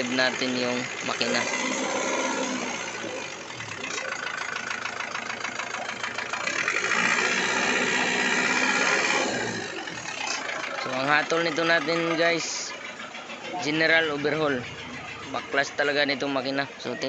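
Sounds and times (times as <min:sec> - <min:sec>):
diesel engine knocking and revving: 0:00.0 - 0:17.0.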